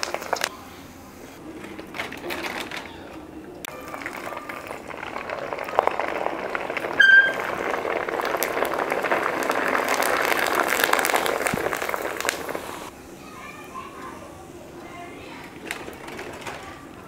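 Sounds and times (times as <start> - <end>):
food sizzling in hot oil: 3.7 - 12.9
brief high squeak: 7.0 - 7.5.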